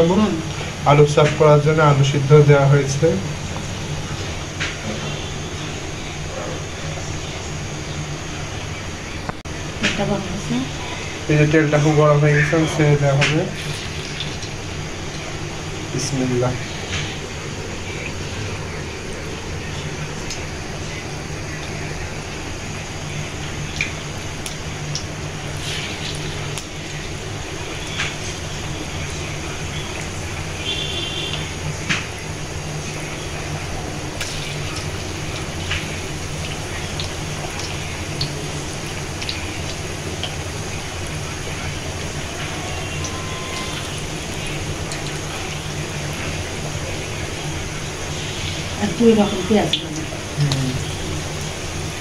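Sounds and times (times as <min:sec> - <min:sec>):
fritters sizzling in hot oil: 0:00.0 - 0:52.0
low steady hum: 0:00.0 - 0:52.0
small crackles of frying: 0:00.0 - 0:52.0
oil popping and spattering: 0:13.2 - 0:48.8.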